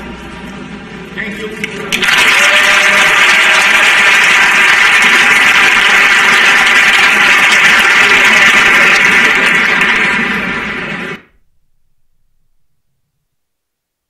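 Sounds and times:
crowd applauding in hall: 1.8s - 11.3s.

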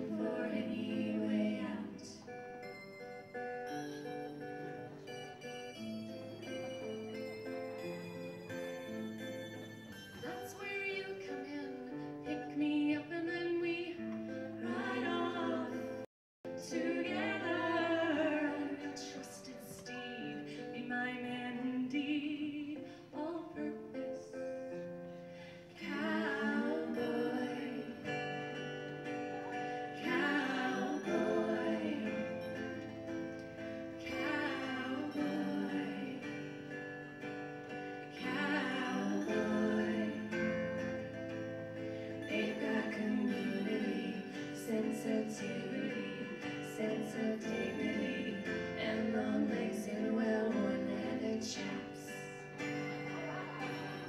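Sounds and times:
women singing together: 0.0s - 2.4s, 10.2s - 24.2s, 25.8s - 28.6s, 29.2s - 32.9s, 34.0s - 36.6s, 38.0s - 41.1s, 42.2s - 52.6s
keyboard: 0.0s - 12.7s
strummed acoustic guitar: 0.0s - 22.0s, 22.7s - 54.0s.

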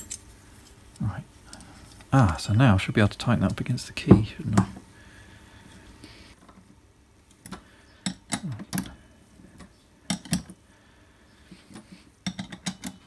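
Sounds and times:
spanner clinking on metal nut: 11.7s - 13.0s.

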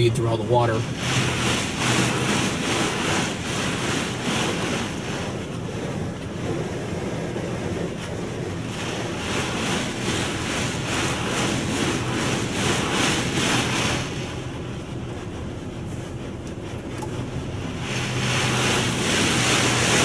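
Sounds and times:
steady low hum: 0.0s - 20.0s
water spray hissing on a car: 0.0s - 20.0s.

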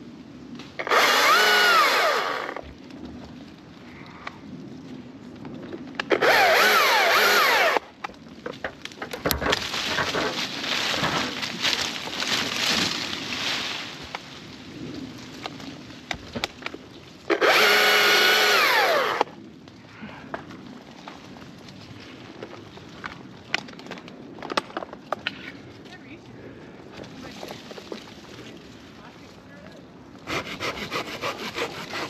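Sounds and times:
rustling with sharp cracks: 0.5s - 29.0s
chainsaw cutting wood: 0.8s - 2.7s, 6.1s - 7.9s, 17.3s - 19.3s, 30.2s - 32.0s.

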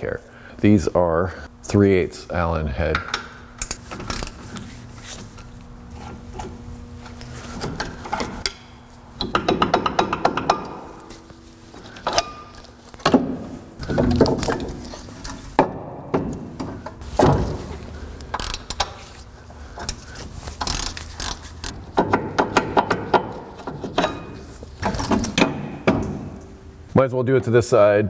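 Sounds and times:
metal parts and tools clanking: 6.0s - 26.6s
hand ratchet clicking: 18.2s - 19.0s, 19.8s - 24.2s.

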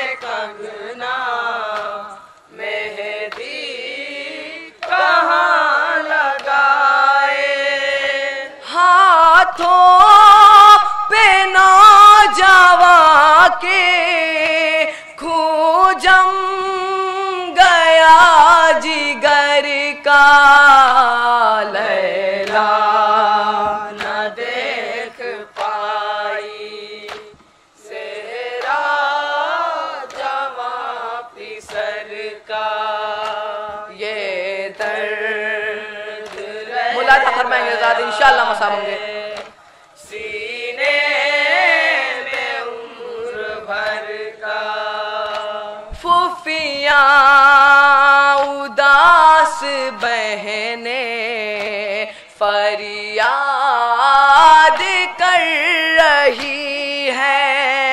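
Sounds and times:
men chanting in unison: 0.0s - 10.0s, 17.9s - 46.6s.

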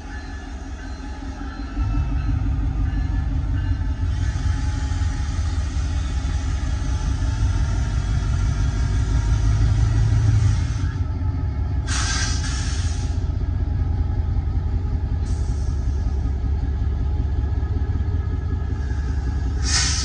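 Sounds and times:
locomotive engine rumble: 0.0s - 20.0s
short sharp hiss: 19.6s - 20.0s.

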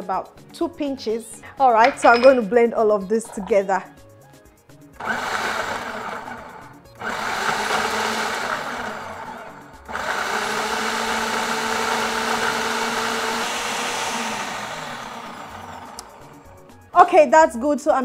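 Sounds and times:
food processor blending: 5.0s - 16.5s.

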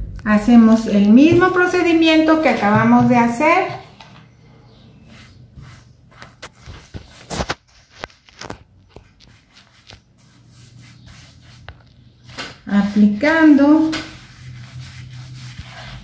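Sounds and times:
paintbrush brushing glue: 5.0s - 7.2s, 9.2s - 11.7s, 12.8s - 16.0s.

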